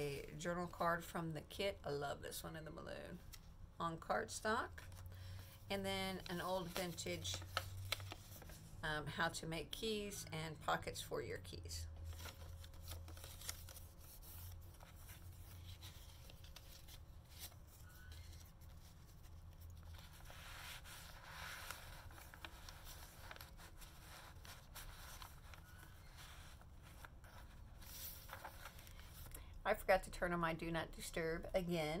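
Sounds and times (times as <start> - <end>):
paper rustling and rubbing: 6.2 - 8.8, 12.0 - 29.3.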